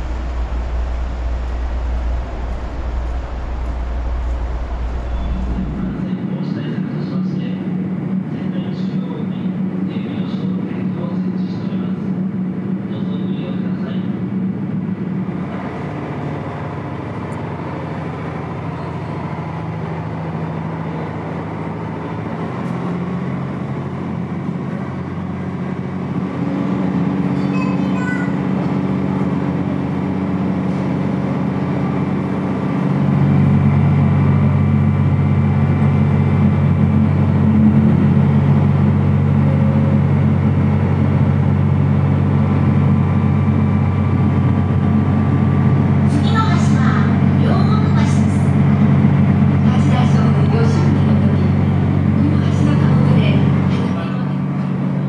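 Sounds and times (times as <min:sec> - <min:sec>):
boat engine drone: 0:00.0 - 0:55.0.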